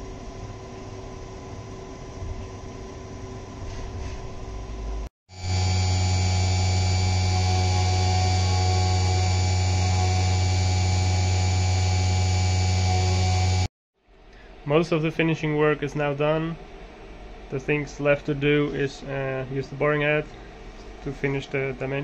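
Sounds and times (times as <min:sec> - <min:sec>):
high whine: 0:05.3 - 0:13.7
milling machine running: 0:05.4 - 0:13.7.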